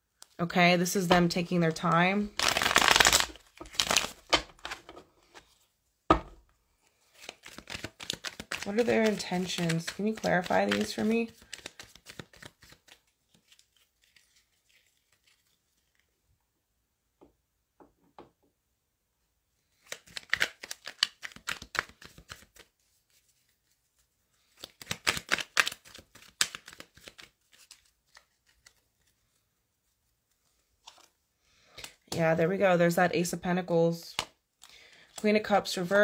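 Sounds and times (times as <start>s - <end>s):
cards being shuffled: 1.1s - 5.6s, 6.9s - 16.1s, 19.7s - 29.4s, 30.3s - 31.2s.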